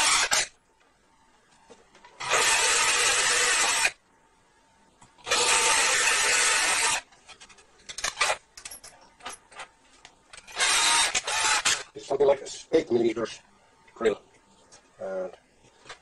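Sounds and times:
electric drill grinding: 0:00.0 - 0:00.5, 0:02.2 - 0:04.0, 0:05.2 - 0:07.1, 0:10.4 - 0:11.9.

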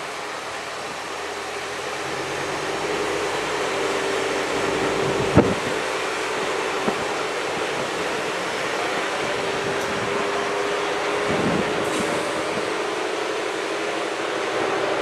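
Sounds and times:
diesel train running: 0:00.0 - 0:15.0.

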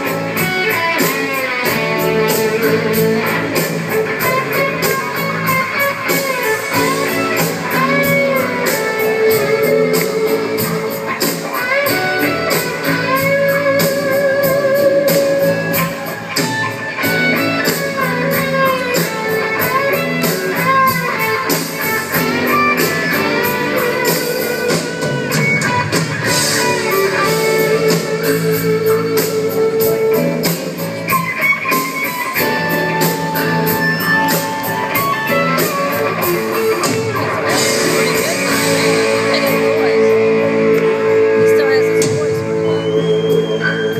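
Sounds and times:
electric guitar lead: 0:00.0 - 0:43.9.

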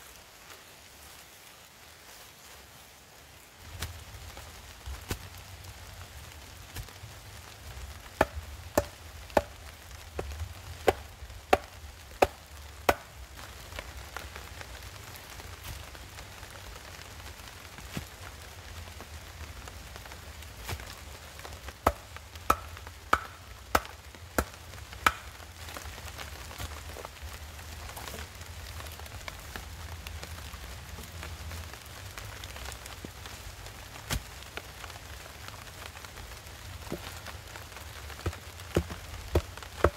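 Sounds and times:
wooden pole knocking into ground: 0:21.9 - 0:24.5, 0:25.1 - 0:25.3, 0:38.2 - 0:39.9.

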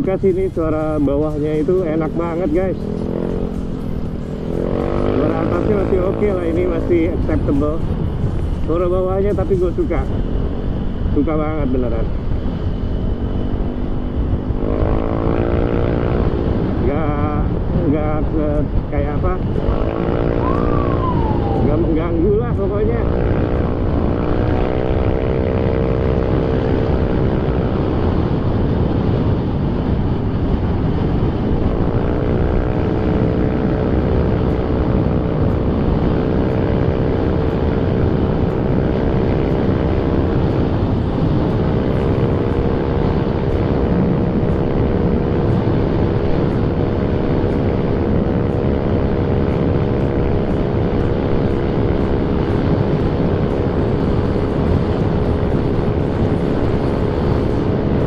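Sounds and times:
wind rush on microphone: 0:00.0 - 0:58.0
scooter engine droning: 0:19.6 - 0:22.2.

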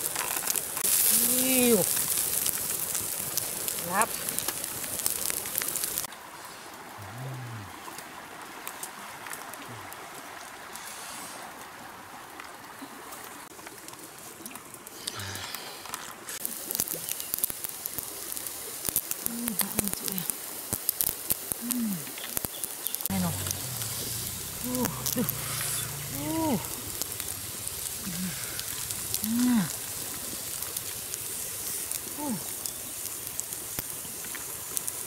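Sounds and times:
fern leaves rustling: 0:00.0 - 0:06.1, 0:16.3 - 0:35.0
wood fire crackling: 0:00.0 - 0:07.0, 0:13.5 - 0:35.0
person speaking: 0:01.1 - 0:01.9, 0:03.8 - 0:04.2, 0:19.3 - 0:20.3, 0:23.1 - 0:27.2, 0:27.9 - 0:29.9.

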